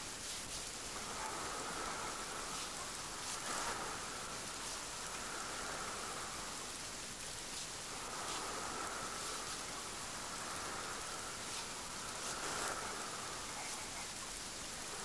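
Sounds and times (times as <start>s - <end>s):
steady rain hiss: 0.0s - 15.0s.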